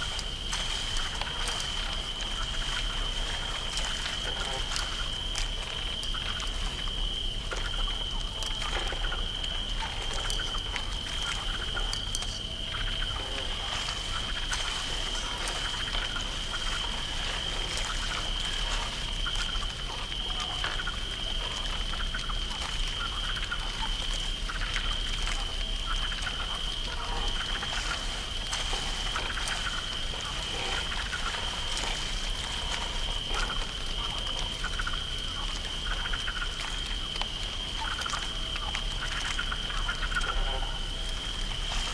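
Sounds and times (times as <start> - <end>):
cricket trill: 0.0 - 41.9
water dripping: 0.0 - 41.9.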